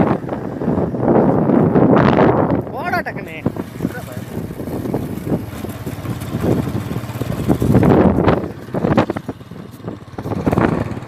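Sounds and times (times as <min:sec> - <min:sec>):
wind buffeting microphone: 0:00.0 - 0:11.0
motorcycle engine passing: 0:03.1 - 0:11.0.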